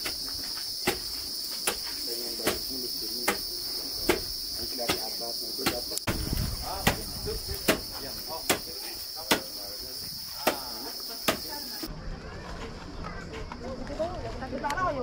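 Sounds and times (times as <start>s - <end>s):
insects droning: 0.0s - 11.9s.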